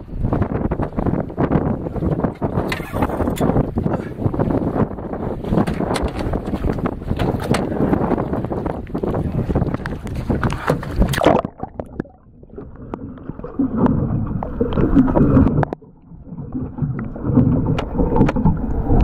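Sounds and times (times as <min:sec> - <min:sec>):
wind buffeting microphone: 0:00.0 - 0:19.0
water rushing underwater: 0:07.7 - 0:19.0.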